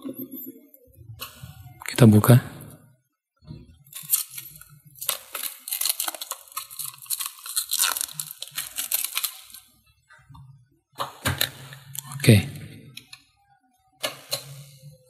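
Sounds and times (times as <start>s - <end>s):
plastic packaging crinkling: 3.9s - 9.7s.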